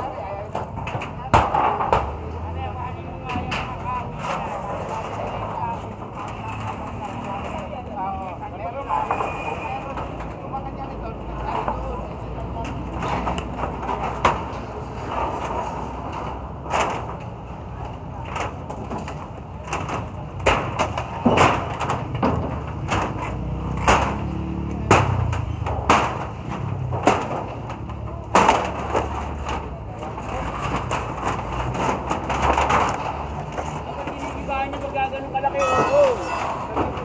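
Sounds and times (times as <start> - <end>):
metal sheets and boards clattering: 18.3 - 34.9.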